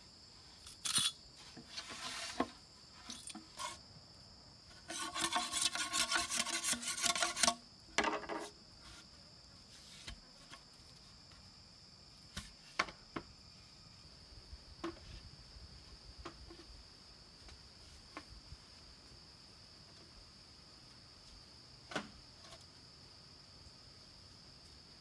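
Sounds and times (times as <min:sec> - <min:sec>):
high-pitched insects droning: 0:00.0 - 0:25.0
machete scraping bamboo: 0:00.6 - 0:03.8, 0:04.7 - 0:08.6
light knocks of bamboo poles: 0:12.3 - 0:13.3, 0:14.8 - 0:15.3, 0:16.2 - 0:16.7, 0:21.8 - 0:22.6.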